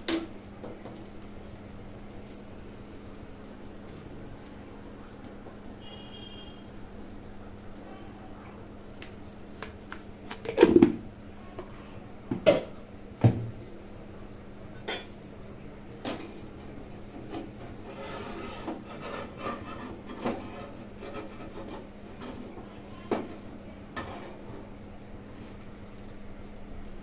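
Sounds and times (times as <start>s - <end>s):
spatula scraping griddle: 16.0s - 25.7s.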